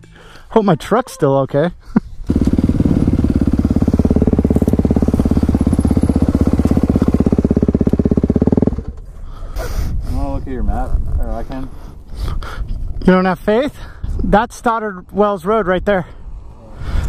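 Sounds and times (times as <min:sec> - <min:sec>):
dirt bike engine idling: 0:02.2 - 0:09.3.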